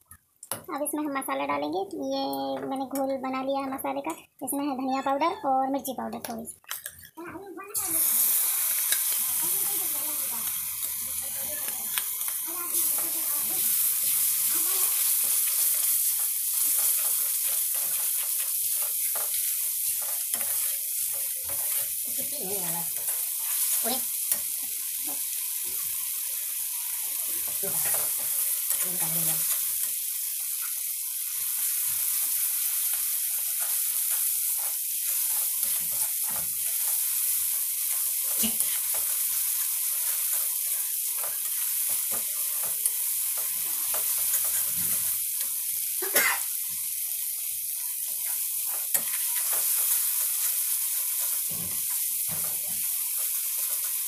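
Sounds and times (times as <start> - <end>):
paste sizzling in oil: 7.7 - 54.0
metal spatula scraping a pan: 12.8 - 24.5, 48.2 - 50.6
spatula tapping a pan: 41.2 - 44.6.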